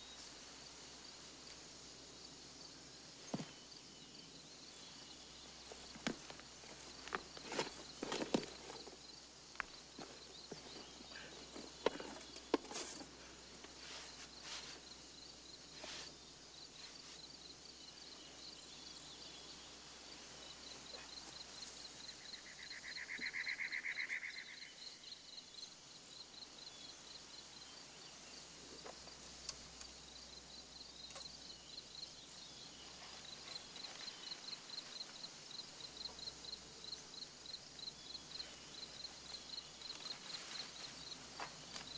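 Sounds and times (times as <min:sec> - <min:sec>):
insects chirping: 0:00.0 - 0:41.9
handling clicks and rustles: 0:05.7 - 0:09.0.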